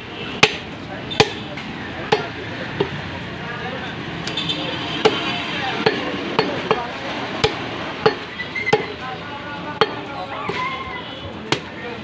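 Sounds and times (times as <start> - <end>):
cleaver chopping meat on wood: 0.4 - 1.4, 5.8 - 8.9.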